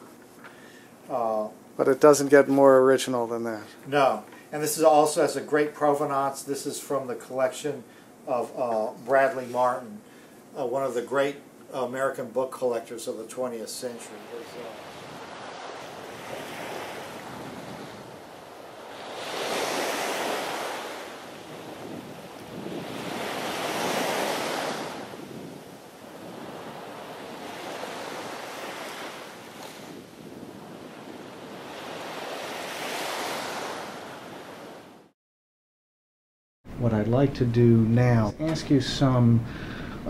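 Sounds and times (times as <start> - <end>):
ocean surf on beach: 13.3 - 35.1.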